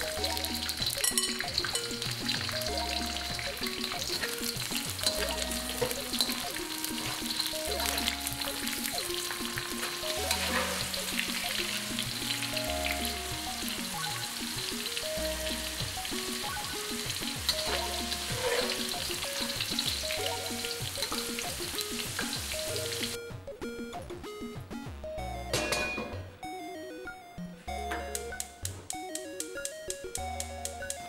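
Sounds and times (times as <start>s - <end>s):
beans deep-frying in oil: 0.0s - 23.2s
background music with bass: 0.0s - 31.0s.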